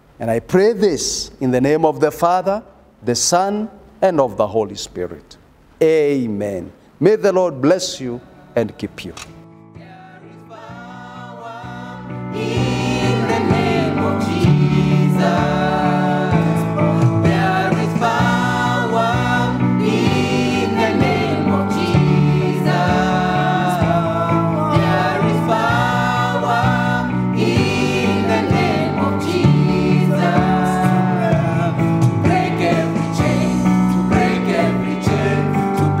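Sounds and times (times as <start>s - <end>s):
instrumental backing: 8.3s - 36.0s
voices singing gospel song: 9.7s - 36.0s.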